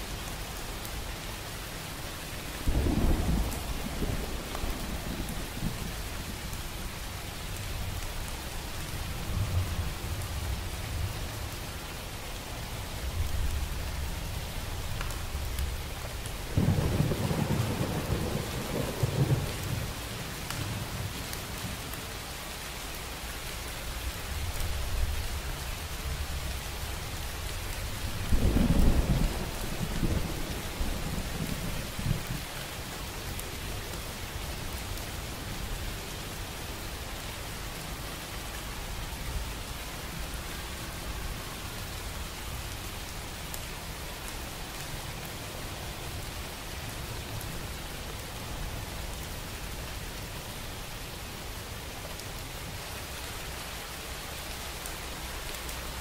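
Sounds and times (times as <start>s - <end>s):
steady rain: 0.0s - 56.0s
thunder rumbling: 2.6s - 6.0s, 16.5s - 19.9s.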